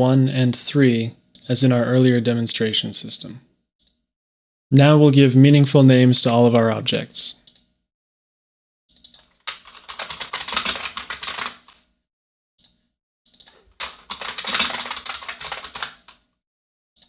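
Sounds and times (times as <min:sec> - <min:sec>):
typing on keyboard: 0:08.9 - 0:11.8, 0:13.3 - 0:16.2.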